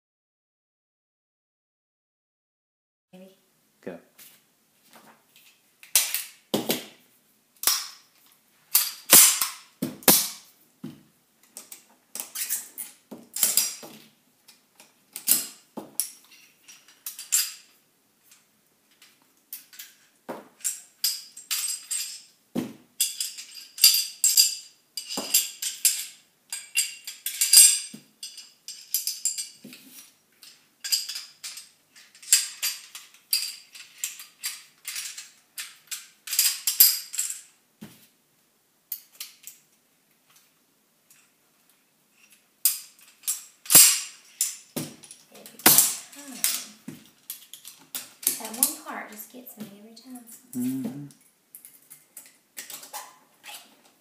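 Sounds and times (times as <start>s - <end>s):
pistol parts clicking and clacking: 5.8s - 6.4s, 7.6s - 8.1s, 8.7s - 10.5s, 11.4s - 17.7s, 30.4s - 37.5s, 42.2s - 48.8s, 51.5s - 53.1s.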